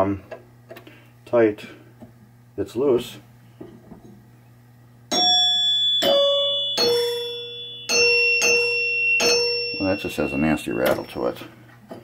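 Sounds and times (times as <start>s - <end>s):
pinball chime bars ringing: 5.1s - 11.4s.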